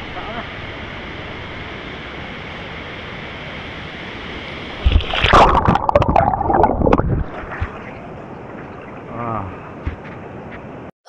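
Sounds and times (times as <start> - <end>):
flowing water rushing: 0.6 - 9.8
water splashing and gurgling: 4.8 - 9.7.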